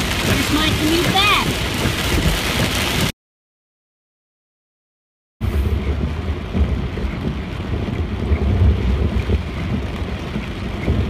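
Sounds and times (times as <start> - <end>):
moving vehicle rumble: 5.4 - 11.0.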